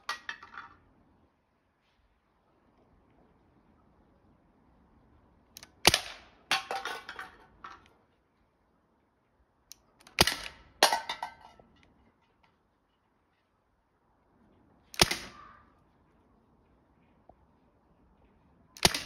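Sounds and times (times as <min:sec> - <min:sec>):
tin can clattering on paving: 0:06.5 - 0:07.8, 0:10.8 - 0:11.7
air gun shots: 0:15.0 - 0:15.6, 0:18.8 - 0:19.0.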